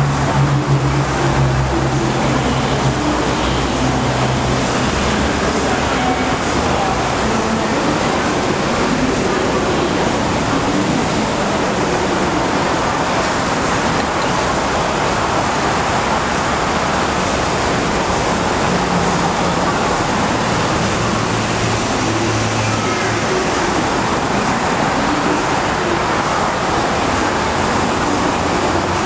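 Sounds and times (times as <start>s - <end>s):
station platform ambient noise: 0.0s - 29.0s.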